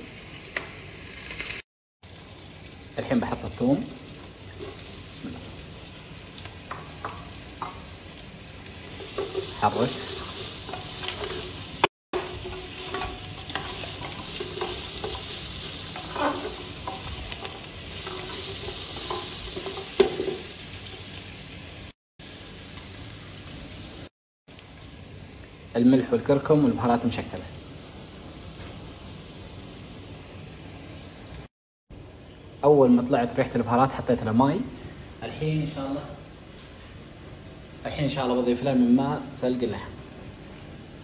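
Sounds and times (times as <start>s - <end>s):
food sizzling in oil: 0.0s - 31.5s
wooden spatula scraping pot: 8.9s - 20.5s.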